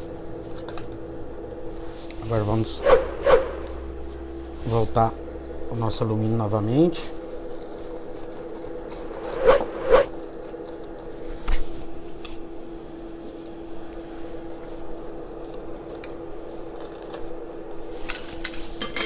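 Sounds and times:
steady hum: 0.0 - 18.8
aluminium foil crinkling and scraping: 6.9 - 9.4, 10.1 - 11.7, 15.3 - 18.6.

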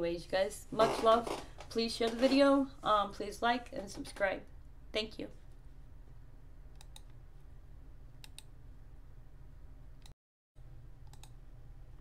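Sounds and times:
low steady hum: 0.0 - 12.0
computer mouse clicks: 6.7 - 7.2, 8.2 - 8.5, 11.0 - 11.4.

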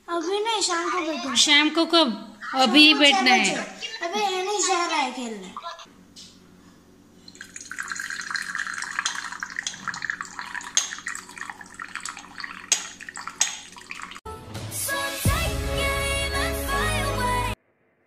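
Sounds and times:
steady low hum: 1.4 - 14.2
tea pouring into a ceramic cup: 7.2 - 14.2.

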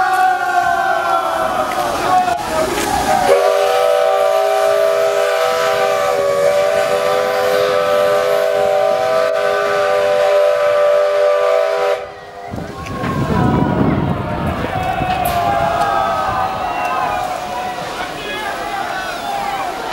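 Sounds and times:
steam locomotive whistle: 3.0 - 14.2.

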